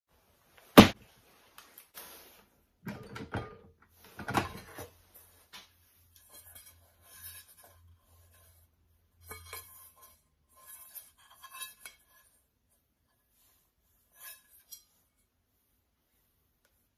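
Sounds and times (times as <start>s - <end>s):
metal pot clattering: 2.8s - 4.9s
light clinks and scrapes: 6.0s - 15.3s.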